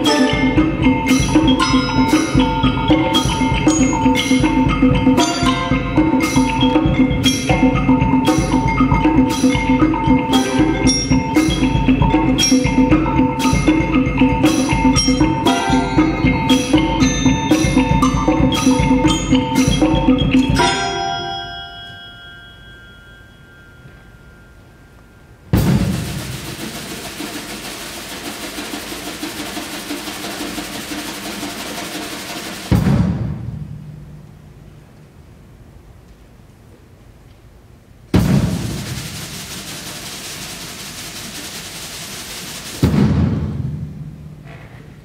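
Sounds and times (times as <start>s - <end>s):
pitched mallet percussion: 0.0s - 32.8s
sharp percussion strokes: 0.0s - 34.8s, 38.2s - 44.4s.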